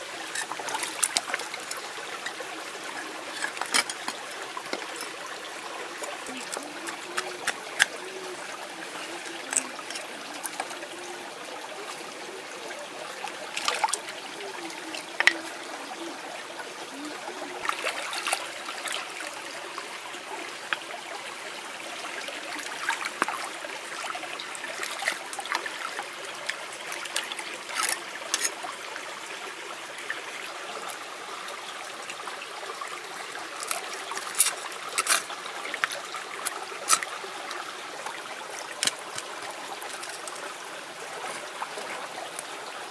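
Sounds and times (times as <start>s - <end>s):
stream trickling over stones: 0.0s - 42.9s
cleaver scraping oyster shells: 0.2s - 5.2s, 6.0s - 8.0s, 9.2s - 10.8s, 27.0s - 28.6s, 33.5s - 40.5s.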